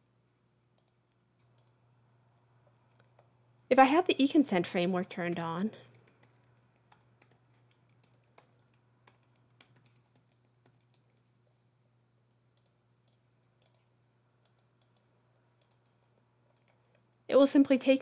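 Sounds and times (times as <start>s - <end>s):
low steady hum: 0.0s - 18.0s
keyboard typing: 0.7s - 3.4s, 4.0s - 11.3s, 12.5s - 17.0s.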